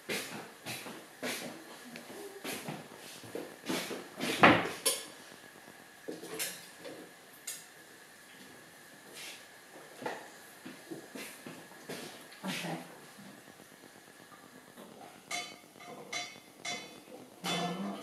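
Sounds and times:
dishes and cutlery clattering: 0:15.3 - 0:18.0.

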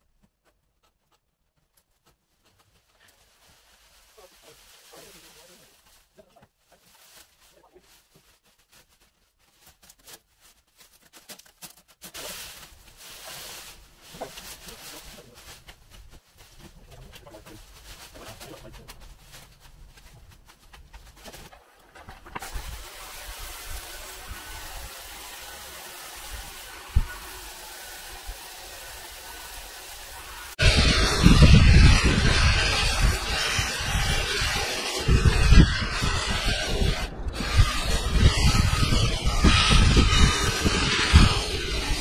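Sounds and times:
branches rustling and snapping: 0:09.6 - 0:14.8.

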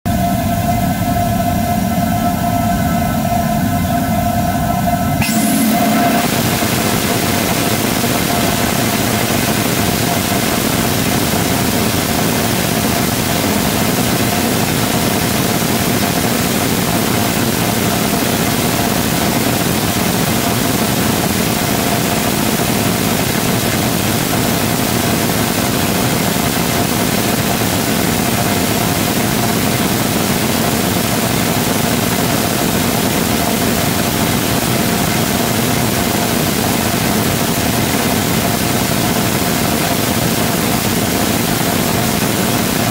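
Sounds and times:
rocket engine exhaust roaring: 0:00.1 - 0:42.9.

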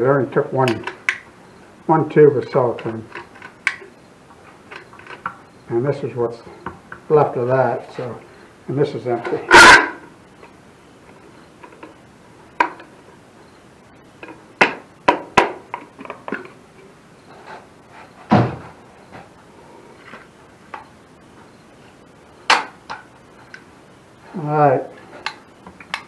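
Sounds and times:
dull knock: 0:18.3 - 0:18.7.

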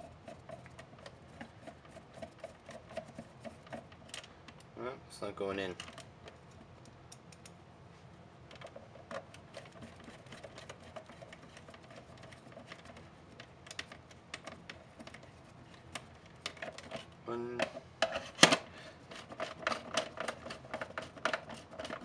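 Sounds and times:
screwdriver clicking and scraping: 0:00.0 - 0:04.7, 0:08.5 - 0:17.2, 0:18.0 - 0:22.0.

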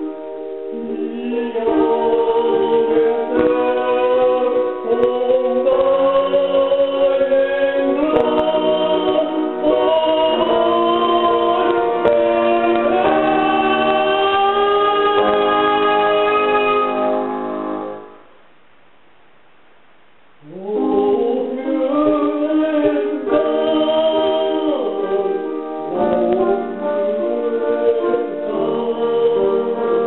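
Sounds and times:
choir singing held chords: 0:00.0 - 0:18.2, 0:20.4 - 0:30.0.

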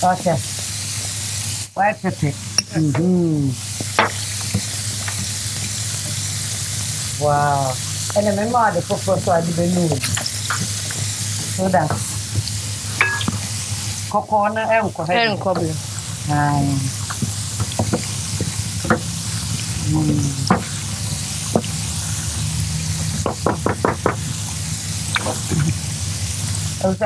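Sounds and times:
food sizzling: 0:00.0 - 0:27.0
voices: 0:01.8 - 0:03.6, 0:07.2 - 0:10.0, 0:11.5 - 0:12.2, 0:14.1 - 0:17.0, 0:19.8 - 0:21.0, 0:26.8 - 0:27.0
spoon knocking against pan: 0:04.0 - 0:04.2, 0:13.0 - 0:13.4, 0:23.2 - 0:24.3.

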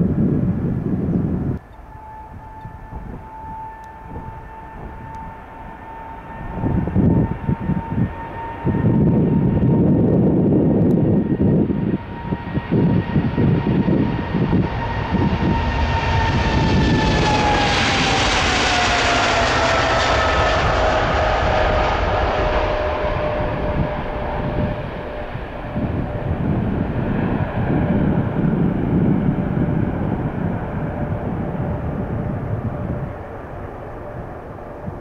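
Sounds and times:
jet engine fan whine: 0:00.0 - 0:35.0
jet engines roaring at takeoff: 0:00.0 - 0:35.0.

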